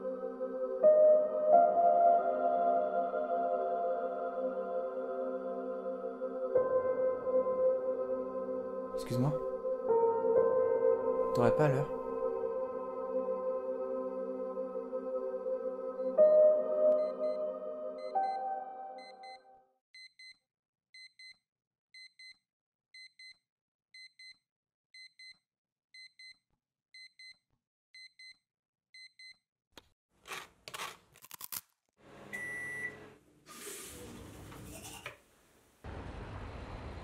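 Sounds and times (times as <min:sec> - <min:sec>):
alarm clock double beeps: 0:19.0 - 0:20.4.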